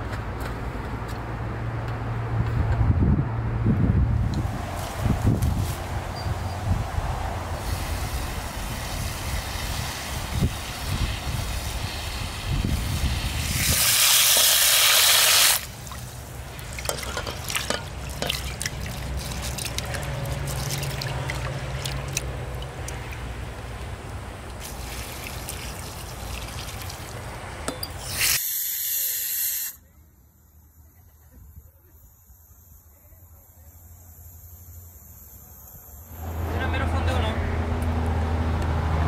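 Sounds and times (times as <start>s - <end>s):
pressure cooker steam hiss: 7.6s - 15.6s, 28.0s - 29.8s
tap water gushing into pot: 13.5s - 23.3s, 24.5s - 27.2s
rice rinsed by hand: 13.6s - 23.3s.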